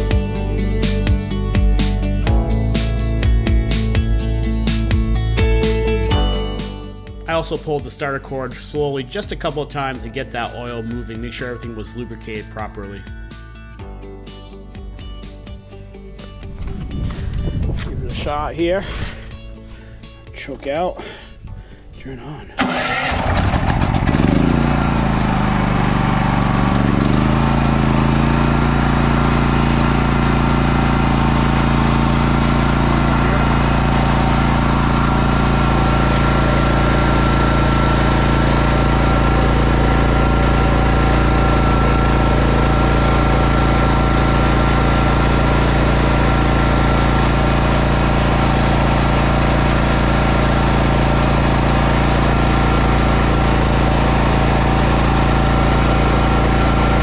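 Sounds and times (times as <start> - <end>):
generator engine running: 14.8 - 20.2, 22.5 - 57.0.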